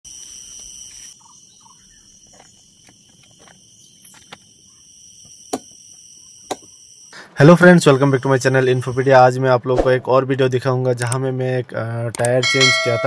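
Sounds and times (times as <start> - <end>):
insect chorus chirring: 0.1 - 9.4.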